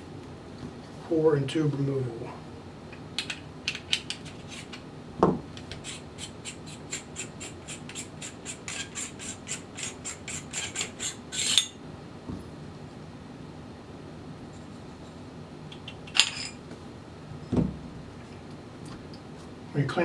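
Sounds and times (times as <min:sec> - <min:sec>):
dull thump: 0:17.5 - 0:17.9.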